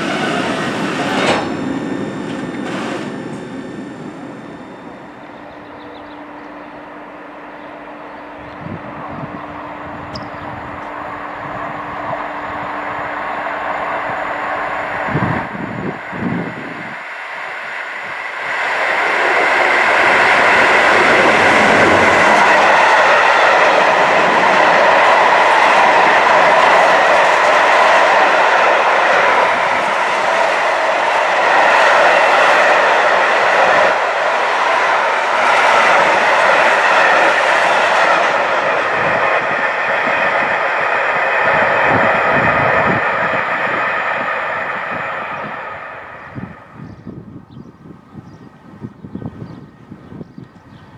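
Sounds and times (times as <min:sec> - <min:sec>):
train wheels clattering on rails: 0:00.0 - 0:04.9.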